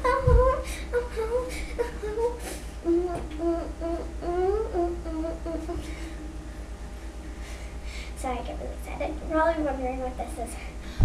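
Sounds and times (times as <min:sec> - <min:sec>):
girl humming a tune: 0:00.0 - 0:06.2.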